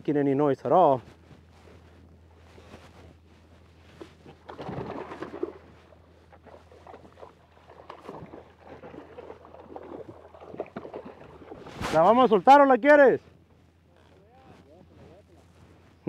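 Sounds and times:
water splashing against a hull: 1.4s - 12.6s.

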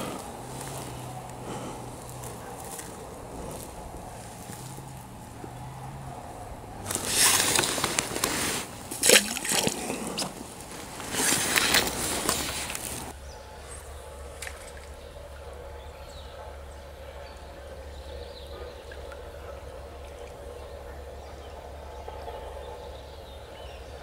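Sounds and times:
water splashing: 0.0s - 13.1s
low hum: 0.0s - 17.8s
stream murmur: 0.0s - 22.5s.

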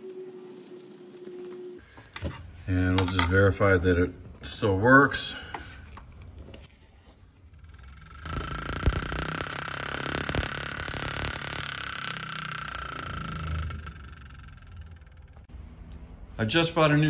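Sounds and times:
ignition buzzing high note: 7.6s - 15.5s
spark plug sparking: 7.8s - 15.0s.

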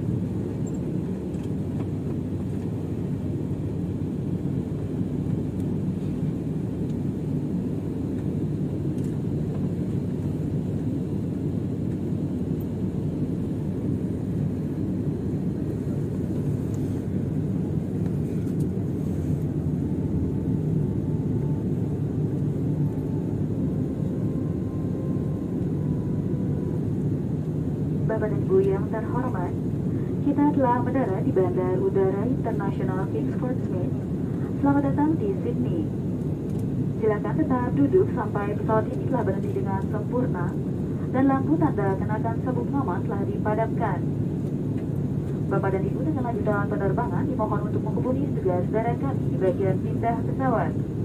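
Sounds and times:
airliner cabin rumble: 0.0s - 51.0s
faint high whine: 18.0s - 34.0s.

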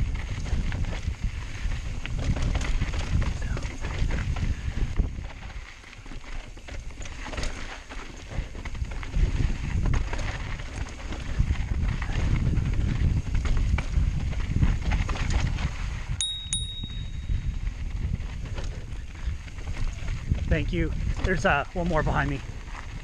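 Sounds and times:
bike rattling down rocky trail: 0.0s - 23.0s
bicycle bell ringing: 16.2s - 17.8s.

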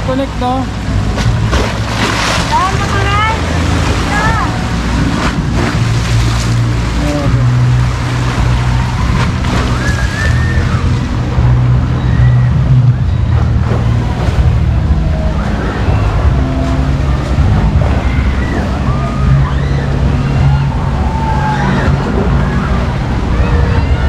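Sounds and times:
churning water: 0.0s - 24.0s
steady low hum: 0.0s - 24.0s
distant shouts of swimmers: 6.9s - 24.0s.

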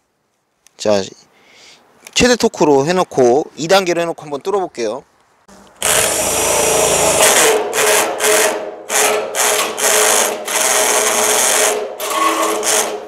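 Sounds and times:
cordless drill whirring: 5.8s - 7.4s
drill clutch ratcheting: 5.8s - 13.0s.

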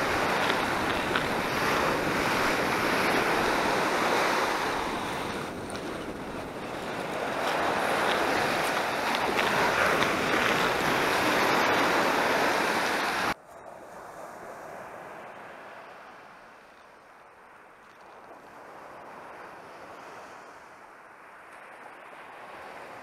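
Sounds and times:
wind on microphone: 0.0s - 16.4s
waves washing onto beach: 0.0s - 23.0s.

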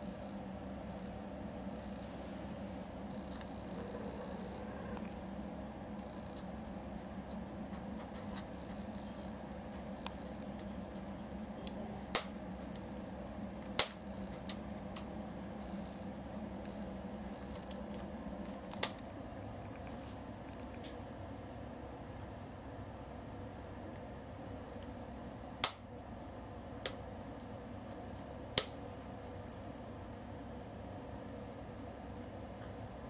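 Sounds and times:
faint ticks and scratches: 0.0s - 12.0s, 12.6s - 21.3s.

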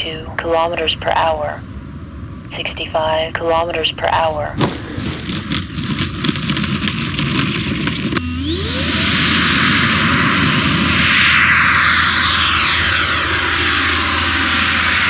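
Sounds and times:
electric ducted fan whine: 0.0s - 15.0s
rush of air: 8.8s - 15.0s.

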